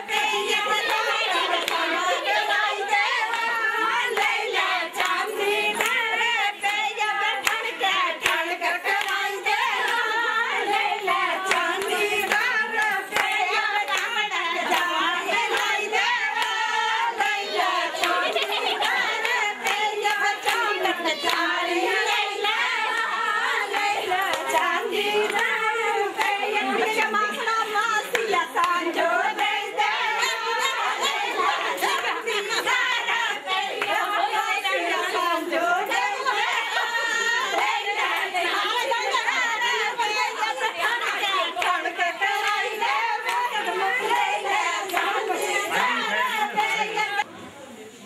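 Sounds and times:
hand-clapping: 0.0 - 47.0
women singing folk song: 0.0 - 47.3.

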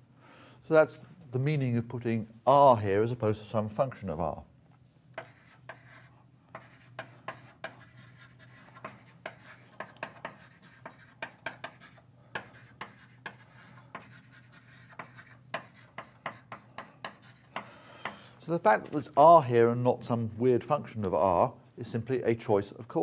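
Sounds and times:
chalk scratching on board: 5.2 - 17.8.

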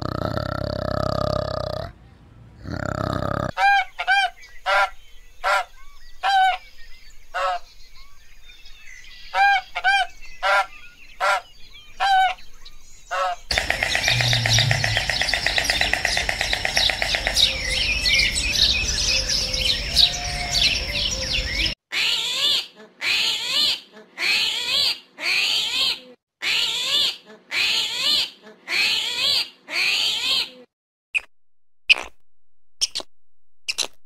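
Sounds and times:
birdsong chirping and trilling: 1.4 - 21.8
insect chirring: 13.5 - 19.0
short bursts of chirping calls: 13.5 - 21.8.

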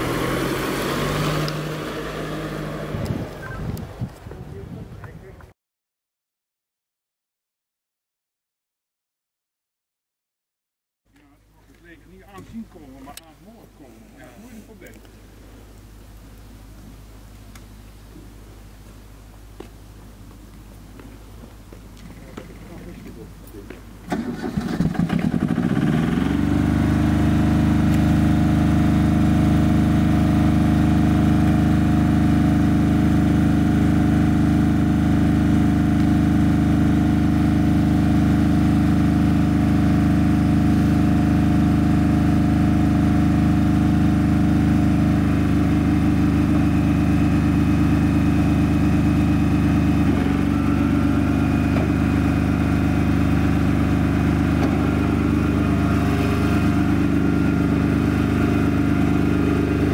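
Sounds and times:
engine starting and running: 0.0 - 4.0, 24.0 - 59.9.

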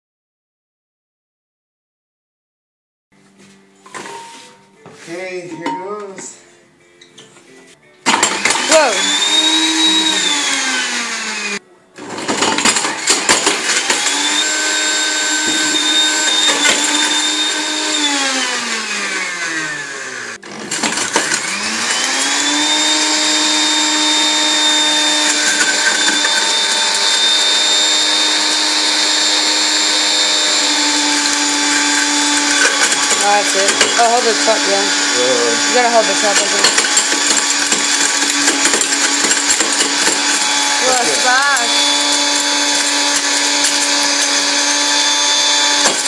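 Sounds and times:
blender motor grinding: 8.1 - 46.0
fragments rattling in blender jar: 20.6 - 34.5, 36.1 - 46.0.

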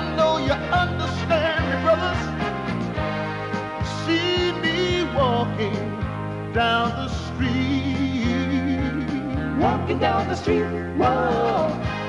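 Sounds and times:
full band instrumental music: 0.0 - 12.0.

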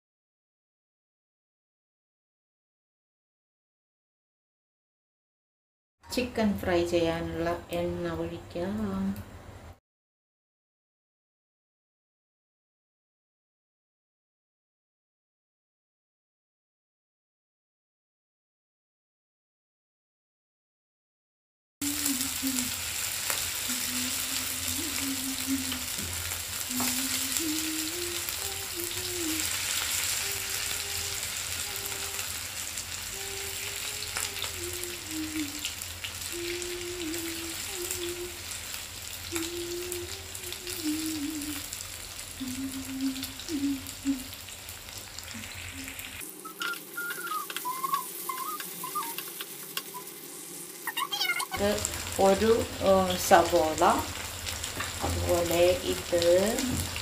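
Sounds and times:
chicken sizzling in oil: 21.8 - 57.0.

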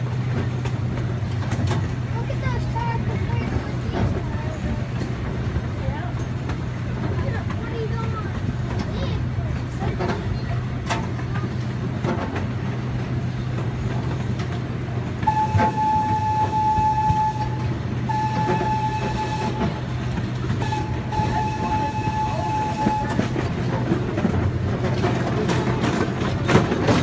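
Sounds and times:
train engine hum: 0.0 - 27.0
train wheel noise: 0.0 - 27.0
train horn blasts: 15.2 - 23.4.

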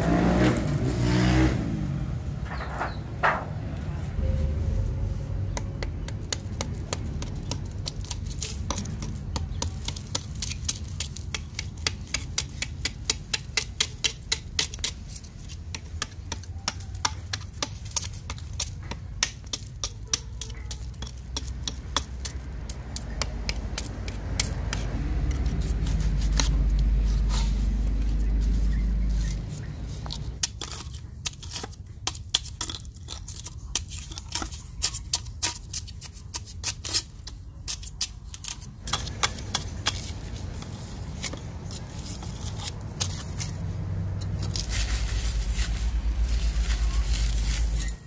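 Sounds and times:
low steady rumble: 1.6 - 11.3
hammer tapping on cement: 5.5 - 25.4, 37.2 - 41.4.

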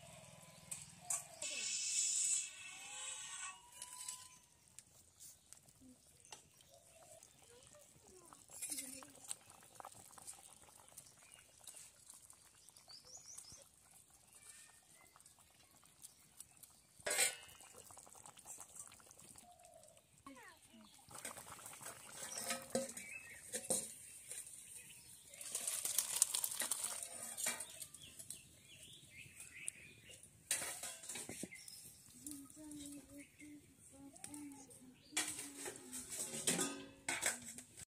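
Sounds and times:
liquid pouring into a bowl: 25.3 - 28.0.

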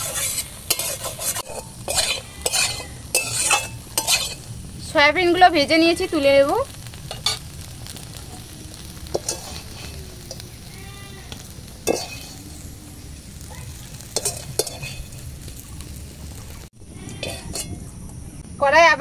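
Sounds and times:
wire skimmer scraping metal pan: 0.0 - 4.5, 9.1 - 10.4, 11.8 - 12.4, 14.2 - 15.2, 17.1 - 17.8.

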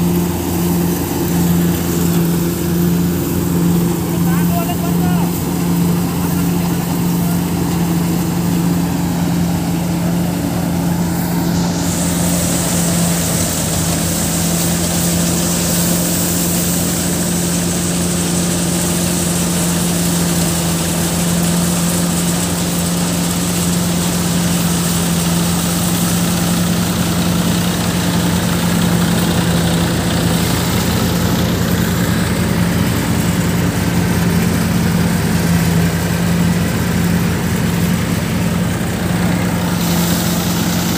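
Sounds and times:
bright hiss: 0.0 - 27.8, 39.1 - 40.9
thresher drum and blower whirring: 0.0 - 40.9
tractor engine running steadily: 0.0 - 40.9.

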